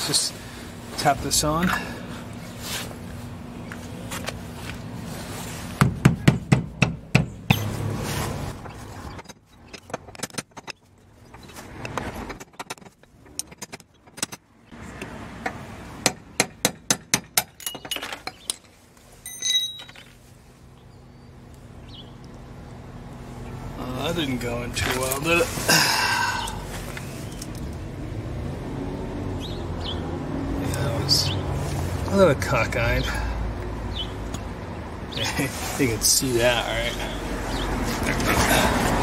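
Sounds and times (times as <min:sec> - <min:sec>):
short metallic ring: 0:19.2 - 0:20.1.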